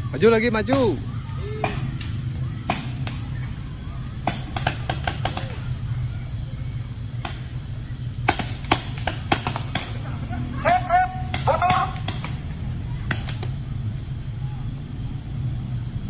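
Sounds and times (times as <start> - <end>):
paintball markers firing: 4.2 - 5.7, 8.2 - 10.0, 11.2 - 13.6.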